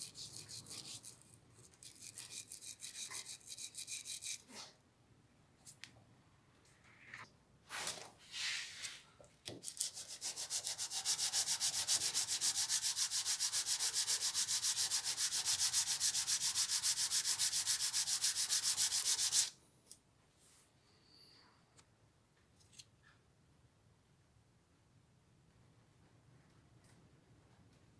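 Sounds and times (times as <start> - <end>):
wooden handle rubbed on sandpaper: 0.0 - 1.2, 1.8 - 4.6, 9.8 - 19.5
short scrapes: 6.9 - 9.1.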